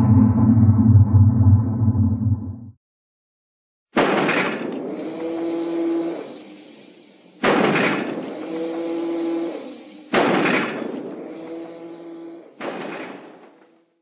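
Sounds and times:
loud metallic crash with ringing hum: 0.0s - 2.3s.

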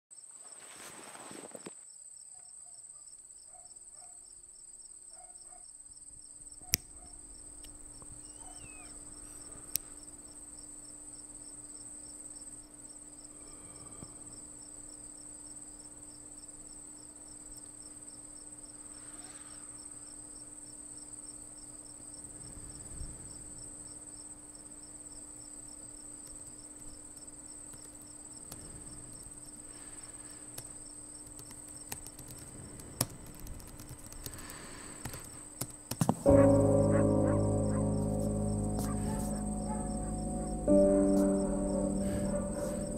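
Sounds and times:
crickets chirring: 5.9s - 42.9s
sharp clicks: 30.6s - 36.6s.

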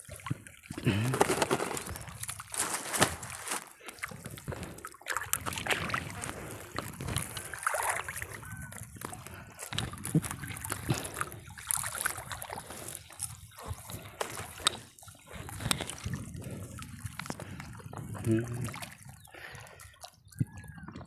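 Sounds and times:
net hauled out of water: 0.6s - 16.2s.

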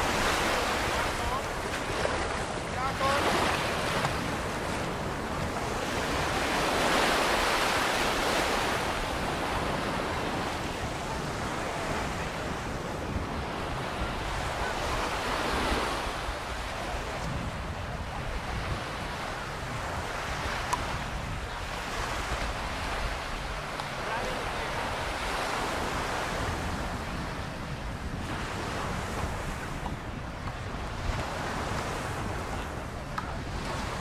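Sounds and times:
ocean surf washing on beach: 0.0s - 34.0s
wind rumbling on microphone: 0.0s - 34.0s.

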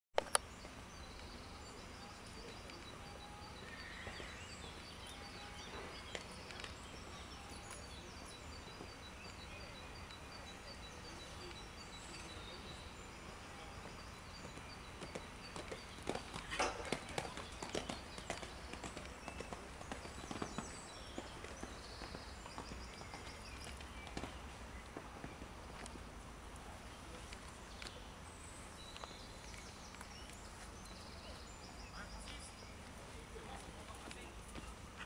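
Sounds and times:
bird chirping: 0.2s - 35.0s
outdoor background hum: 0.2s - 35.0s
horse hoofbeats on sand: 13.4s - 25.9s.

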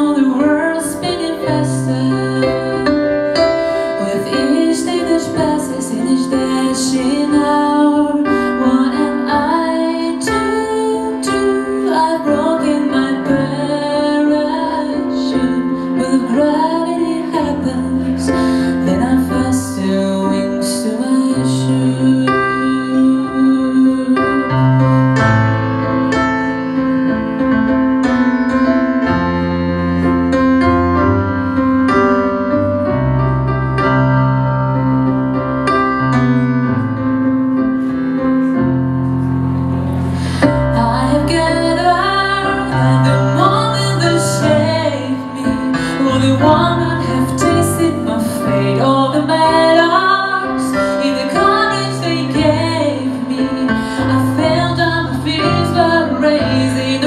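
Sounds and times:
woman singing: 0.0s - 24.9s, 40.4s - 57.0s
piano chords: 0.0s - 57.0s.

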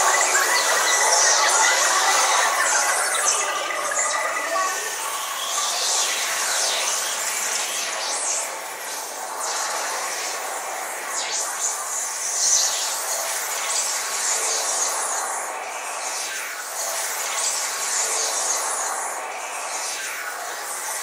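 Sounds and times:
hissing synthesizer noise sweeping: 0.0s - 10.6s.

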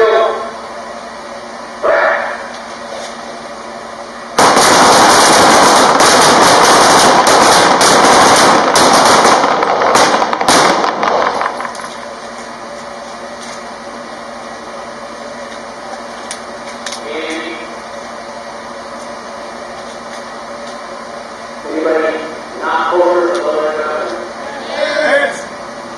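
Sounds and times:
pistols firing rapid shots: 4.4s - 11.6s.

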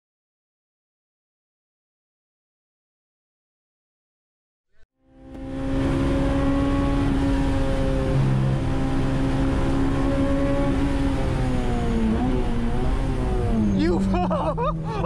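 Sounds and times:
car engine under load: 5.1s - 15.0s.

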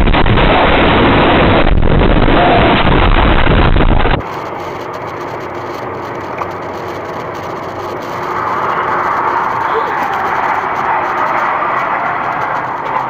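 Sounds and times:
loud rough crash rumbling: 0.0s - 4.3s
car driving on highway: 0.0s - 13.0s.

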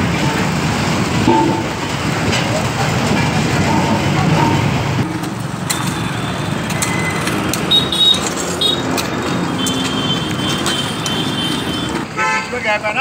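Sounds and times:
road roller engine running: 0.0s - 12.3s
street traffic: 0.0s - 13.0s
short high beeps: 5.7s - 8.8s.

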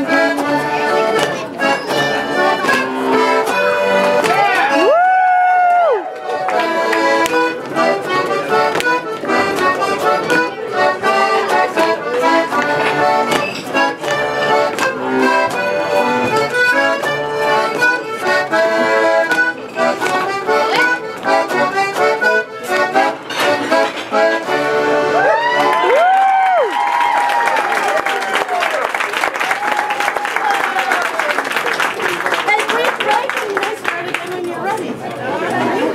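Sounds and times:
accordion dance tune: 0.0s - 26.0s, 27.4s - 35.9s
people whooping: 4.7s - 6.2s, 25.2s - 31.4s.

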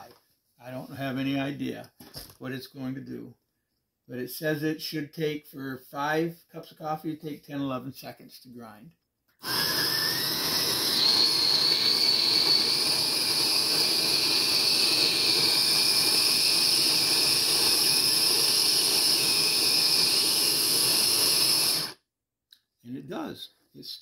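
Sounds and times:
coffee grinder motor whirring: 9.4s - 22.0s.

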